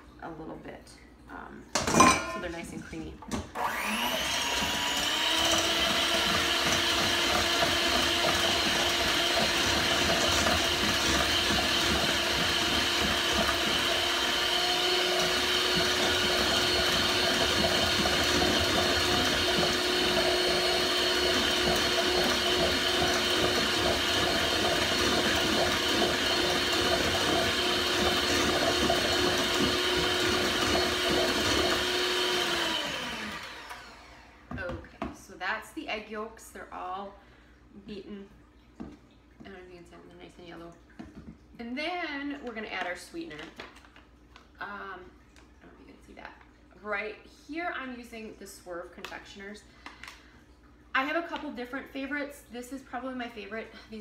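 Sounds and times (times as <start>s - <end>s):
electric hand mixer whining: 3.5s - 34.8s.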